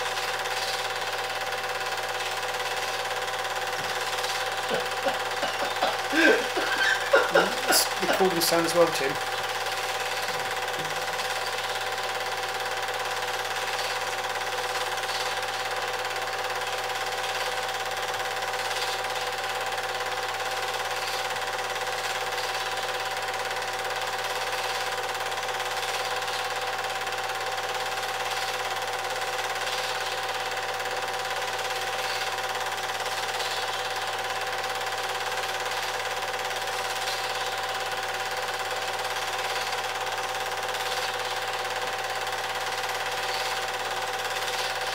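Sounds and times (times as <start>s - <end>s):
film projector whirring: 0.0s - 44.9s.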